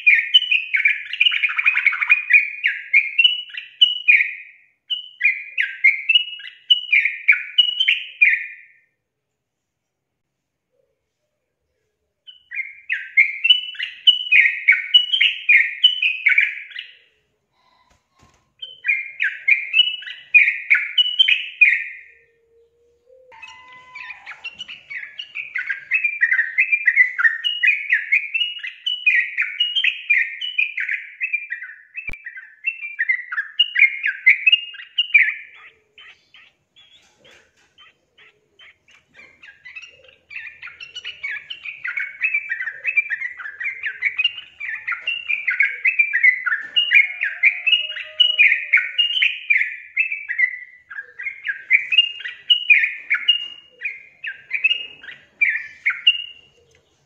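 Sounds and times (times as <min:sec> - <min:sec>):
bird singing warbled notes: 0:18.6 - 0:37.1.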